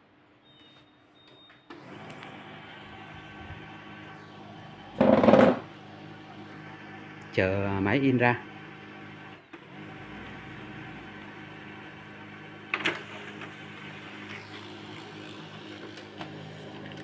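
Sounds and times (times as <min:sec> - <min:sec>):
printer motor and gear hum: 0:01.7 - 0:17.0
printer click: 0:12.7 - 0:13.5.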